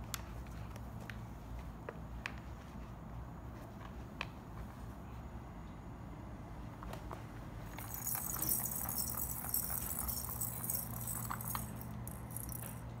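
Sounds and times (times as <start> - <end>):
plastic ball rattling in track: 7.8 - 12.9.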